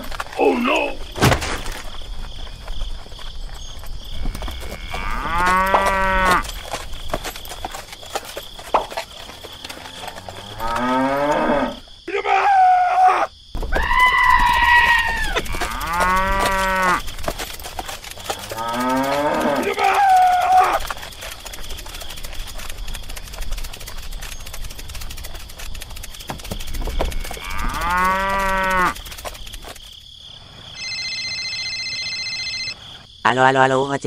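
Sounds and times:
cows mooing: 4.2 - 6.5, 9.2 - 11.9, 14.3 - 17.2, 18.2 - 20.9, 26.8 - 29.1.

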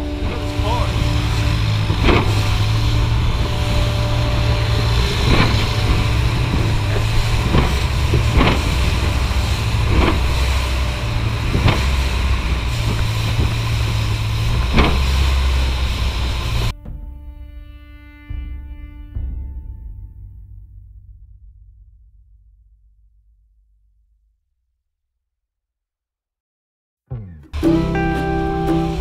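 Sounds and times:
hull slapping through water: 0.0 - 16.7
spray splashing: 0.0 - 16.7
boat engine droning: 0.0 - 20.4, 27.1 - 29.0.

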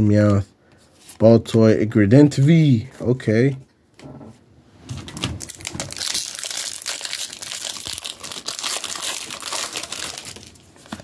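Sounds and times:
foil wrapper crinkling: 5.1 - 11.0.

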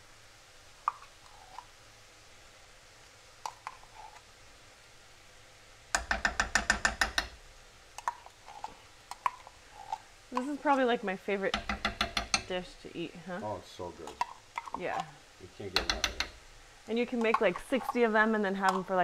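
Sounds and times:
spoon knocking inside metal can: 11.5 - 12.5.

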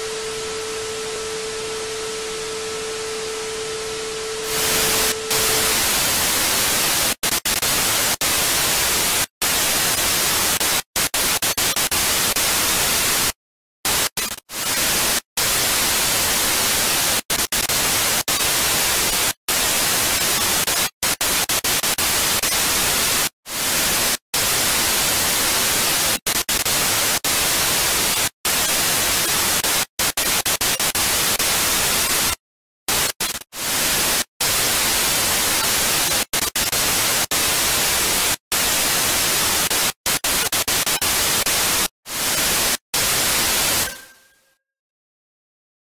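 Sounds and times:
television static hiss: 0.0 - 7.0.

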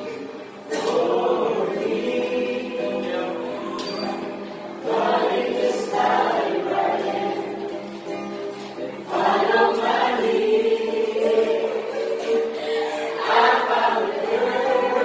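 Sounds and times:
acoustic guitar: 0.0 - 15.0
group singing: 0.0 - 15.0.

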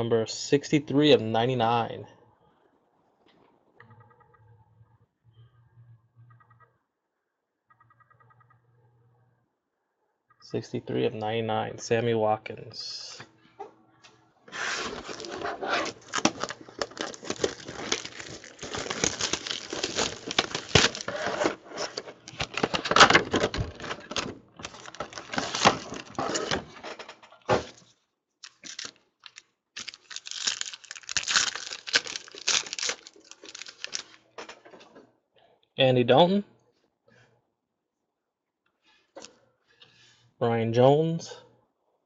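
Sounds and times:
foil wrappers crinkling and tearing: 14.6 - 26.6, 28.4 - 34.2.

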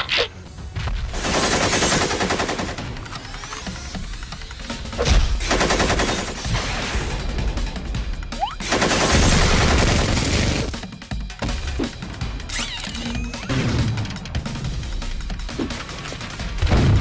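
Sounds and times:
background music: 0.0 - 17.0
machine gun fire bursts: 1.1 - 3.8, 5.3 - 6.5, 8.6 - 10.8.

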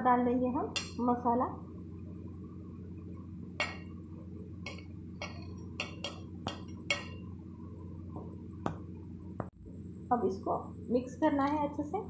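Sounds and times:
steady low hum: 0.0 - 12.0
crockery clinking: 0.8 - 1.0, 4.7 - 7.2.

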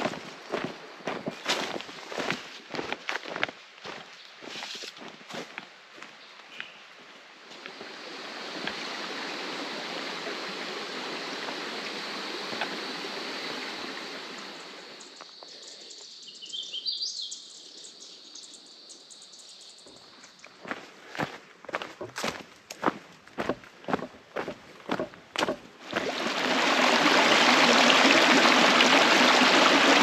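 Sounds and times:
footsteps on dirt trail: 0.0 - 7.9, 19.8 - 26.2
creek flowing over stones: 7.4 - 15.2, 22.8 - 30.0.

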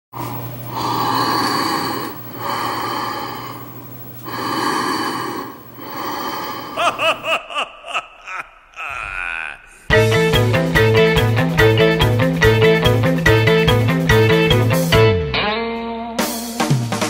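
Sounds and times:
heavy rasping breaths: 0.2 - 10.0.

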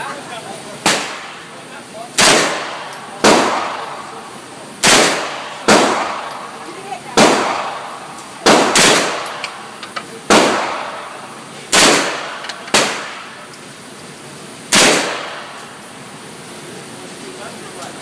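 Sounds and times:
gunshots echoing indoors: 2.2 - 4.0, 4.8 - 6.5, 7.2 - 9.5, 10.3 - 13.3, 14.7 - 15.6.

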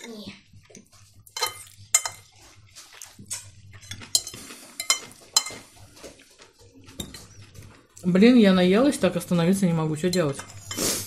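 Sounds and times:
forks clinking and scraping on plates: 0.7 - 8.0, 10.0 - 11.0.

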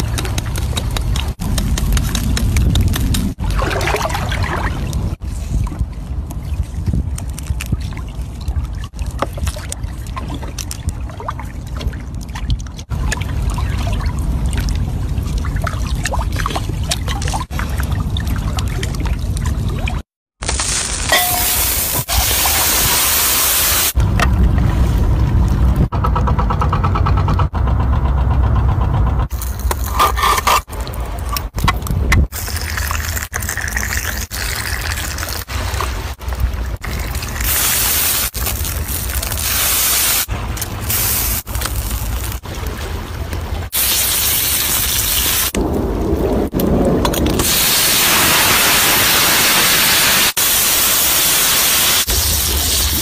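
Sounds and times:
liquid sizzling on hot stone: 20.4 - 24.0, 32.3 - 36.0, 36.8 - 42.4, 43.8 - 45.6, 47.4 - 53.0.

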